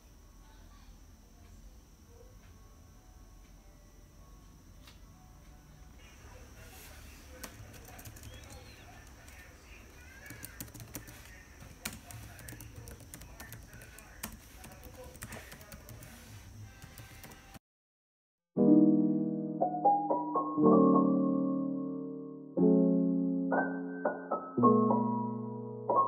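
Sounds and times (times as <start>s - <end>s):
laptop keyboard typing: 6.8s - 17.6s.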